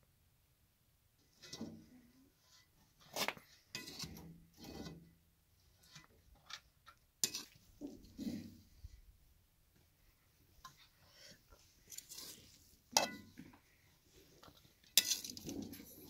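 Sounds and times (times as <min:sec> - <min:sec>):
knocks clatters and scrapes: 0:01.3 - 0:05.1, 0:05.8 - 0:08.9, 0:10.6 - 0:16.0.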